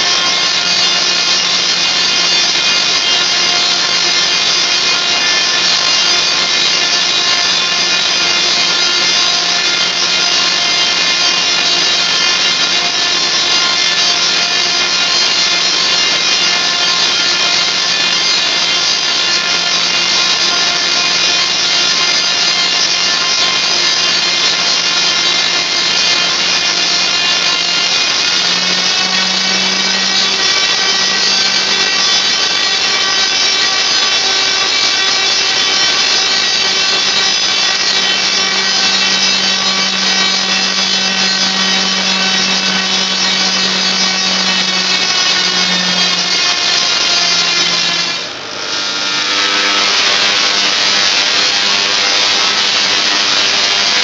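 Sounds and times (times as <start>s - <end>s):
tesla coil sparks buzzing: 0.0s - 54.0s.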